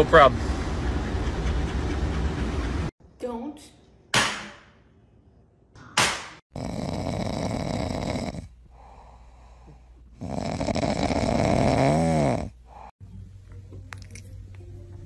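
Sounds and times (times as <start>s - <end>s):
dog snoring: 6.5s - 9.1s, 10.1s - 12.6s.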